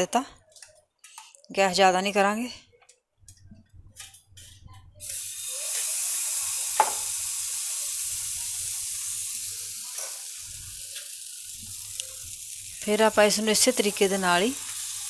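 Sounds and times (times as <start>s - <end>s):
batter sizzling on hot pan: 4.4s - 15.0s.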